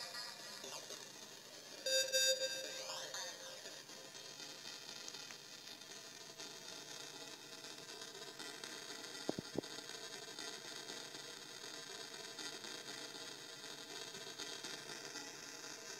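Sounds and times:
faint steady hiss: 0.0 - 15.9.

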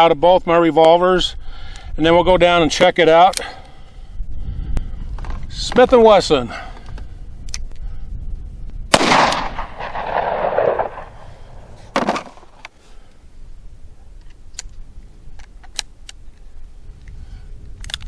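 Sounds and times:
revolver gunshot with echo: 8.9 - 12.6.

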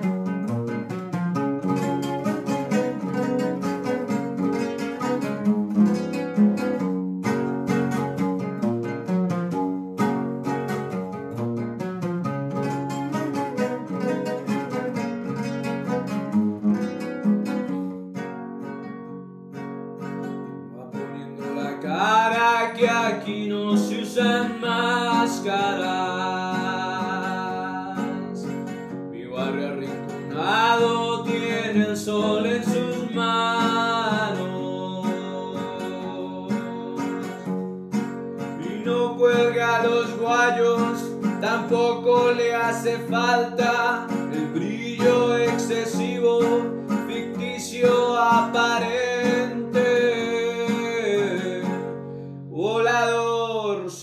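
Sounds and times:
plucked string instrument strumming: 0.0 - 54.0
man singing: 20.8 - 37.6, 38.4 - 54.0.

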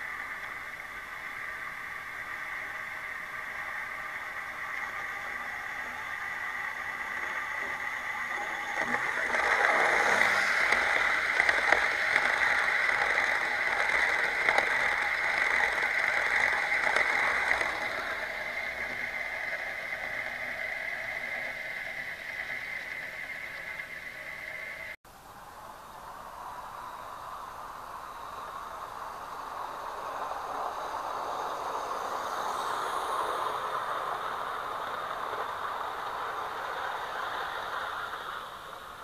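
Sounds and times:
scattered clicks: 0.0 - 21.6
model train wheels rattling: 0.0 - 25.0, 28.0 - 39.0
steady hiss: 0.0 - 39.0.

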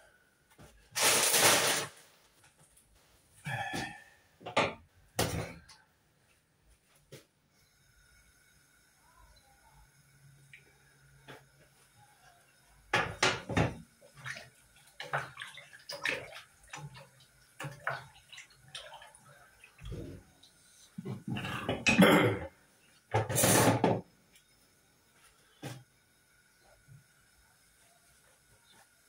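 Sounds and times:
pans and lids clattering: 21.3 - 22.5.

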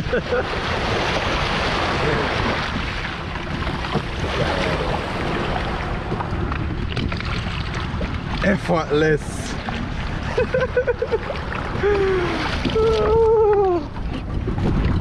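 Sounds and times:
sea water lapping at shore: 0.0 - 15.0
wind rumble on microphone: 0.0 - 15.0.

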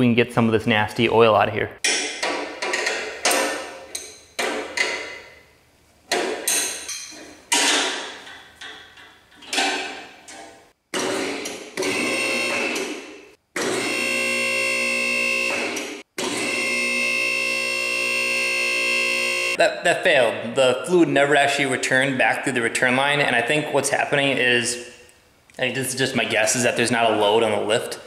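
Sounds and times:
sharp metal clanks: 6.1 - 10.0
hydraulic pump hum and whine: 11.8 - 12.8, 13.6 - 19.6.

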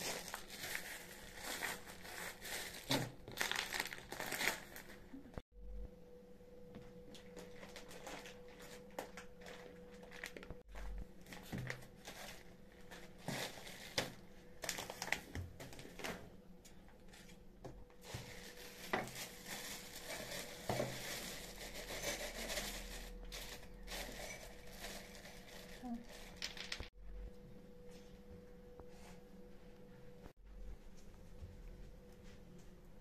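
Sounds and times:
plastic bags crinkling: 0.0 - 5.2, 7.2 - 16.2, 18.0 - 26.9.

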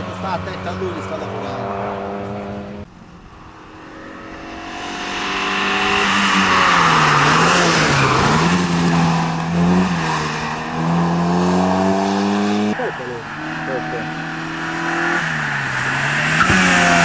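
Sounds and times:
race car passing at high revs: 0.0 - 17.0.

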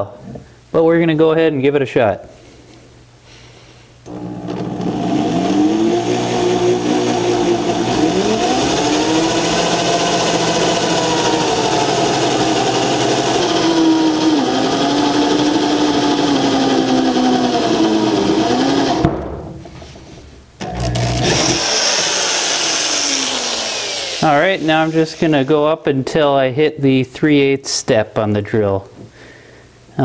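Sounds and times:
electric drill drilling steel: 4.1 - 19.1, 20.6 - 25.6.

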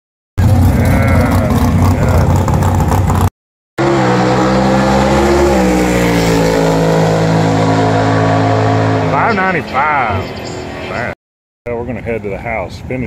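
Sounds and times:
drag race car engines running: 0.4 - 11.1.

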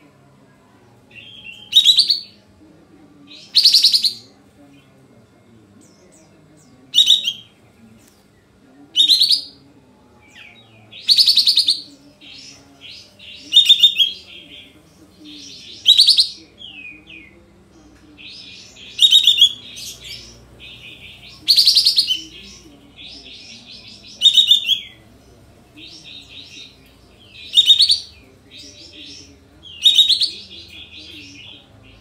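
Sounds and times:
bird chattering: 3.3 - 4.3, 10.9 - 17.3, 18.2 - 25.2, 25.8 - 32.0.

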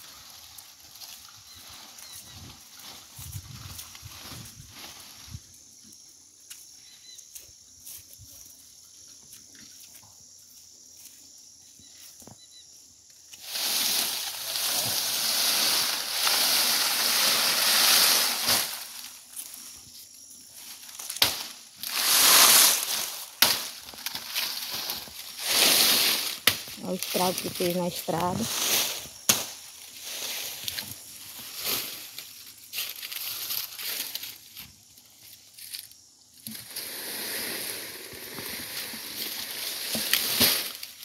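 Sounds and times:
palm fronds rustling and scraping: 0.0 - 8.7, 11.9 - 41.0.

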